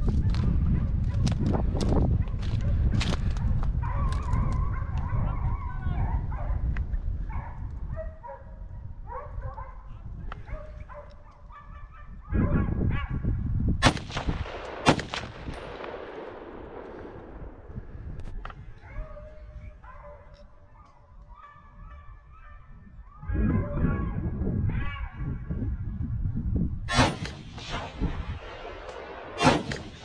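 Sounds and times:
distant hounds baying: 3.8s - 6.7s, 7.3s - 13.2s, 18.6s - 25.3s
rifle shots echoing: 13.8s - 17.8s, 26.9s - 30.0s.

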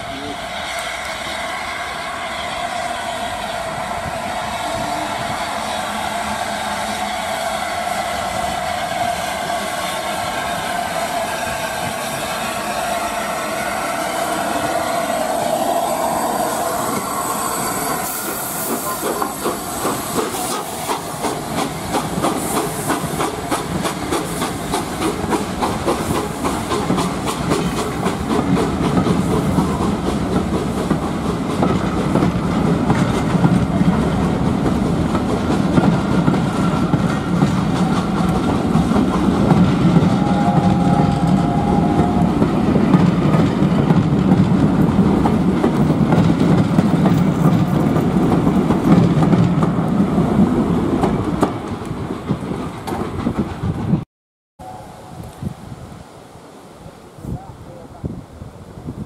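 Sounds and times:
steam hissing: 0.0s - 33.4s
steam locomotive exhaust beats: 0.0s - 54.0s
train wheels clickety-clack: 16.1s - 54.0s
brief high tone: 54.6s - 55.2s.

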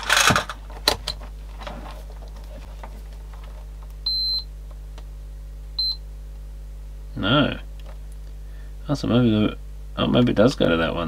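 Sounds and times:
steady low hum: 0.0s - 11.0s
multimeter beep: 4.0s - 4.5s, 5.8s - 6.0s.

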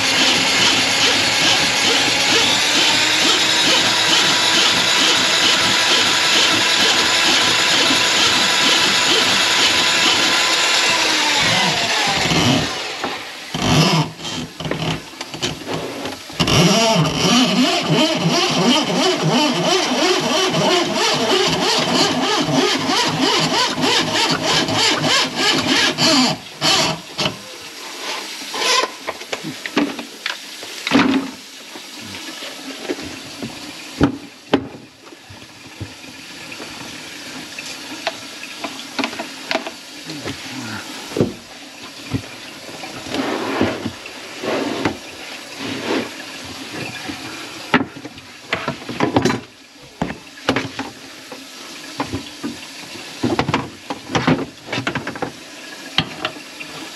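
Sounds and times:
electric motor running: 0.0s - 14.4s.

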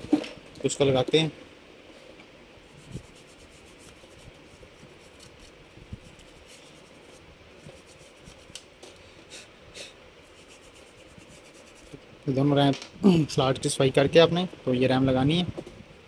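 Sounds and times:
brush scrubbing scratchily: 2.6s - 8.6s, 10.2s - 12.0s.

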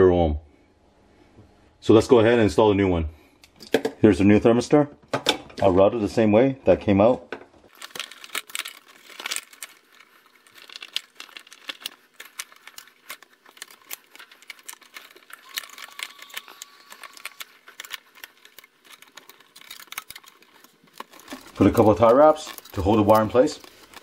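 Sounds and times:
wires crackling and tapping on coil: 7.7s - 24.0s.

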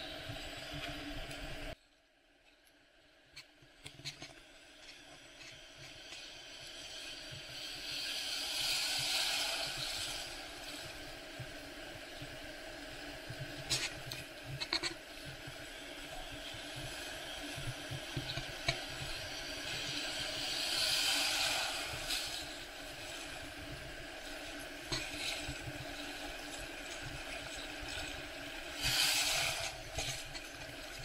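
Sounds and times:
surf whitewater rushing and fizzing: 6.8s - 31.0s.

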